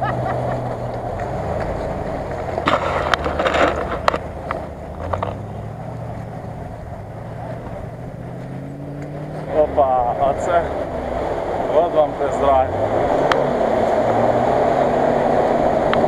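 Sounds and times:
suv engine running: 0.0 - 16.0
sharp clicks and knocks: 0.9 - 5.5.

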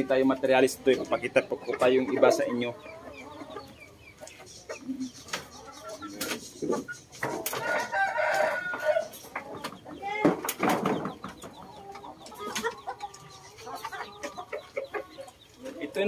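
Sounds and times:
chickens clucking: 0.0 - 16.0
rooster crowing: 7.6 - 9.1.

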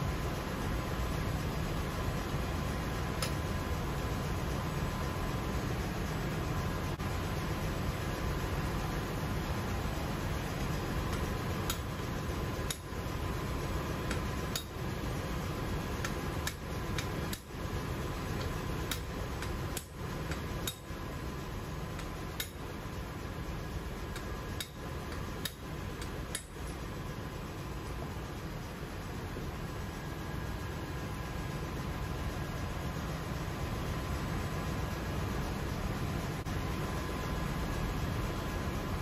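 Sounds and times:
steady background noise: 0.0 - 39.0
hammer tapping on metal: 11.1 - 12.0, 14.1 - 14.8, 18.4 - 20.9, 24.1 - 26.8.

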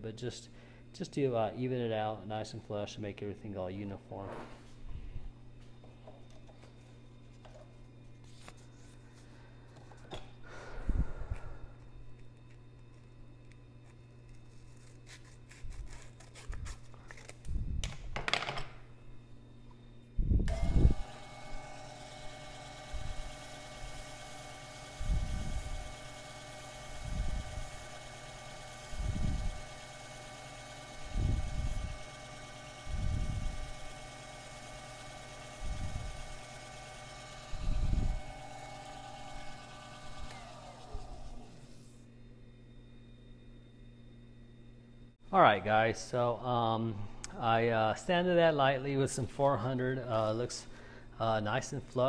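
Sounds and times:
lathe hum and whine: 0.0 - 52.0
lathe motor thump: 20.5 - 41.6.

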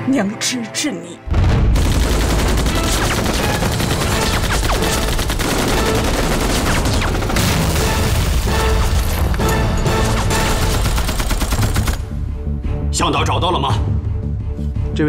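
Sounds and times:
rifles and machine gun firing: 1.7 - 8.4, 9.9 - 12.1.

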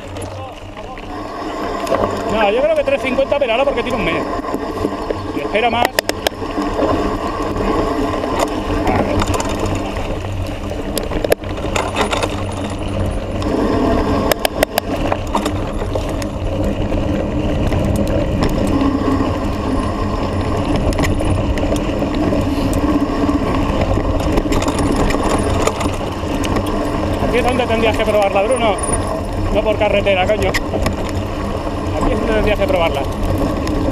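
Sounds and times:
bike rattling: 0.0 - 33.9
tyres rumbling on dirt: 0.0 - 33.9.

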